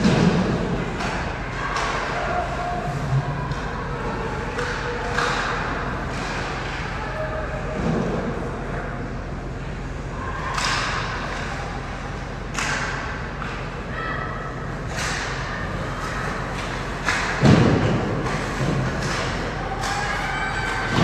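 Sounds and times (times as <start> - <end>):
skates and sticks scraping ice: 14.9 - 21.0.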